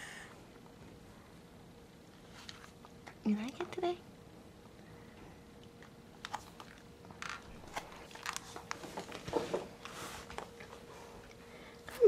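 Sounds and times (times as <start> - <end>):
faint steady hum: 0.0 - 12.0
soft rustles and clicks: 2.0 - 3.2, 5.8 - 12.0.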